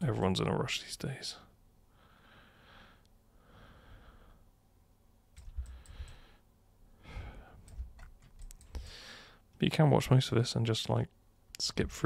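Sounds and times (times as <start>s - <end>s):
faint breathing: 1.9s - 4.6s, 5.4s - 7.8s, 8.6s - 9.5s
computer mouse clicks: 5.4s - 6.2s, 7.6s - 8.8s.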